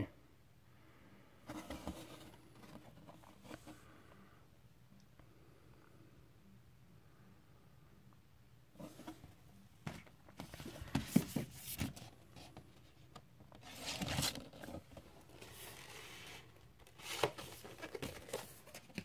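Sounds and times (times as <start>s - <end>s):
paper and card rustling: 13.6s - 19.0s.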